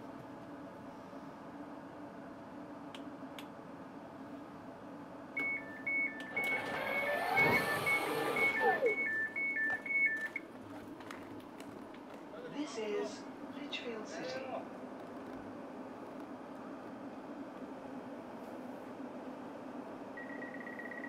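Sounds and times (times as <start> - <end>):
two-pitch warning beep: 5.4 - 10.4, 20.2 - 21.0
door mechanism whirring: 6.3 - 9.0.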